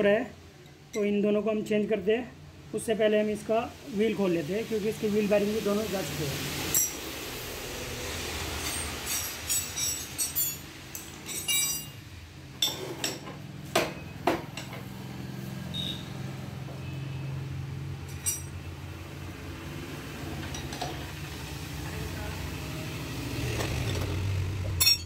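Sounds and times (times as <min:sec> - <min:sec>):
metal hand tools clinking: 0:06.7 - 0:07.1, 0:08.6 - 0:12.0, 0:18.1 - 0:18.6, 0:24.8 - 0:25.0.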